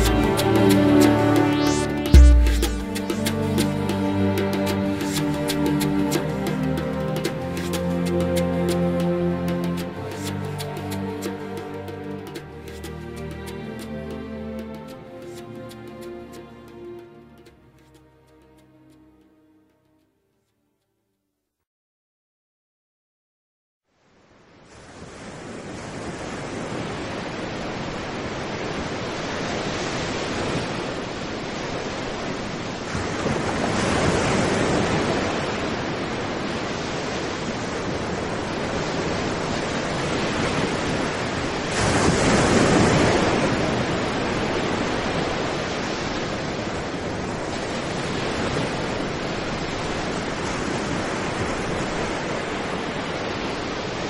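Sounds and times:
waves breaking on sandy beach: 0:24.6 - 0:54.0.

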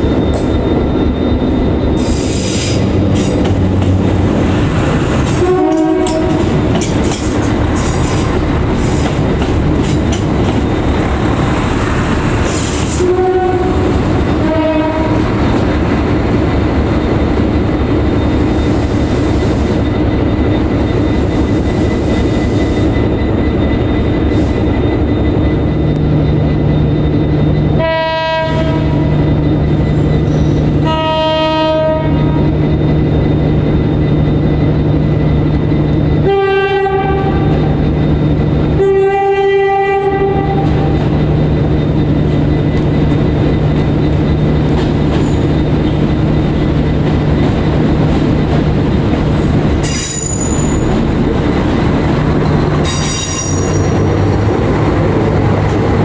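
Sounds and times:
train horn blasts: 0:05.3 - 0:06.7, 0:12.8 - 0:15.4, 0:27.8 - 0:29.2, 0:30.8 - 0:32.5, 0:36.2 - 0:37.8, 0:38.8 - 0:41.0
brief high squeal: 0:49.8 - 0:50.9.

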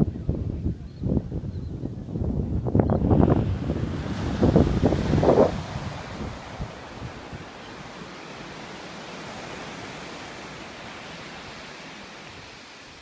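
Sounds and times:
waves breaking on beach: 0:03.0 - 0:13.0.

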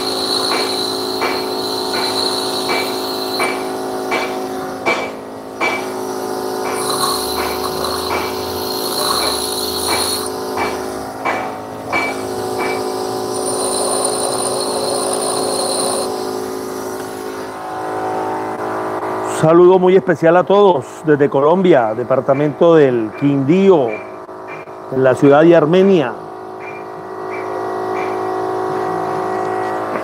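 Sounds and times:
high-pitched metal grinding: 0:00.0 - 0:04.5, 0:05.7 - 0:16.9
grinder motor hum: 0:00.0 - 0:04.8, 0:05.4 - 0:18.0
sharp ticks: 0:06.6 - 0:10.8.

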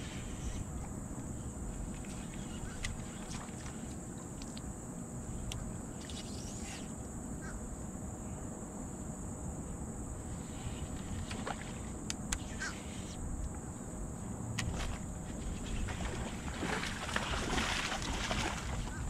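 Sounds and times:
wind and water rumble: 0:00.0 - 0:19.0
faint bird calls: 0:02.1 - 0:03.4, 0:12.4 - 0:13.2.

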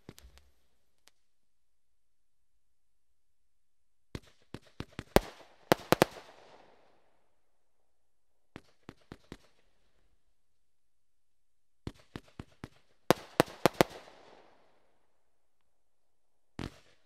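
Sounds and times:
firework cake bangs: 0:11.8 - 0:14.1.

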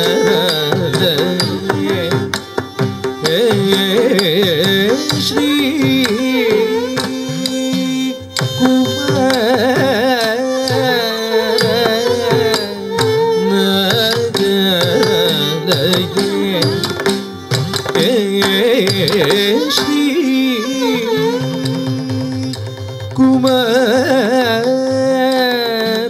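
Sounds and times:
person singing ornamented phrases: 0:00.0 - 0:02.4, 0:03.2 - 0:22.3
hand drum strokes: 0:13.9 - 0:19.9.

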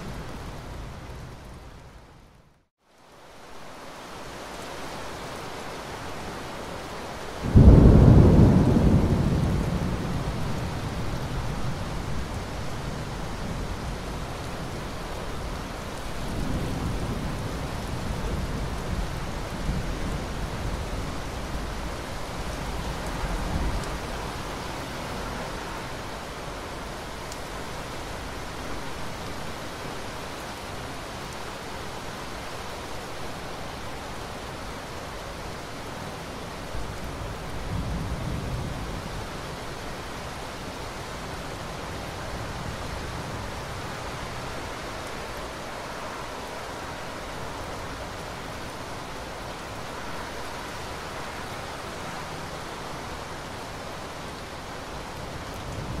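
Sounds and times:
steady rain: 0:00.0 - 0:56.0.

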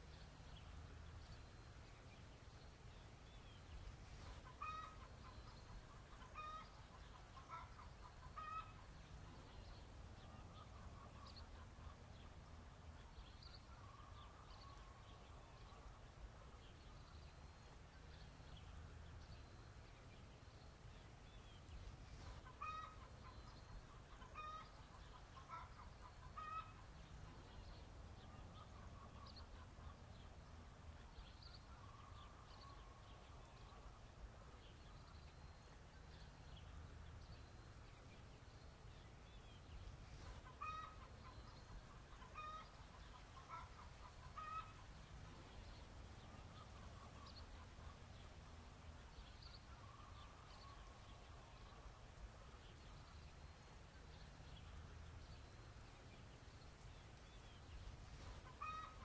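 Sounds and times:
faint chickens clucking: 0:04.1 - 0:16.7, 0:21.8 - 0:34.9, 0:39.8 - 0:48.3, 0:57.4 - 0:59.0.

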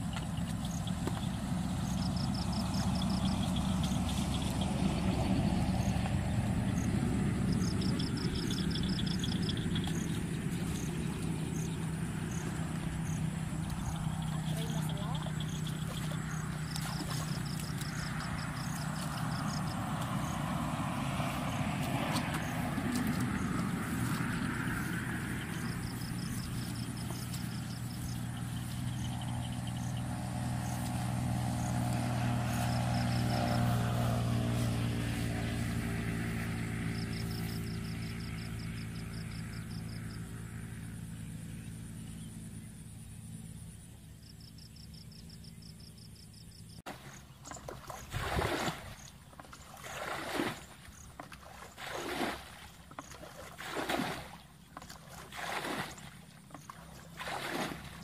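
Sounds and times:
water splashing: 0:00.0 - 0:39.2, 0:46.9 - 0:58.0
engine hum: 0:00.0 - 0:58.0
bucket scooping and flinging water: 0:14.6 - 0:29.0, 0:46.9 - 0:58.0.

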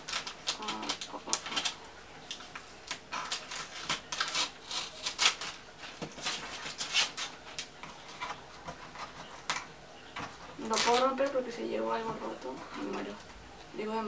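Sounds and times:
fingernails scratching packing tape: 0:03.1 - 0:05.6, 0:06.3 - 0:07.4.

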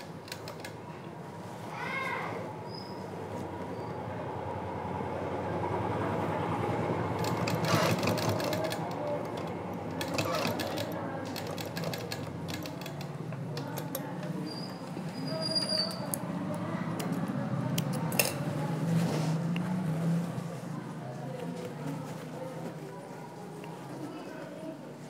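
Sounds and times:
sewing machine running: 0:07.2 - 0:13.2.

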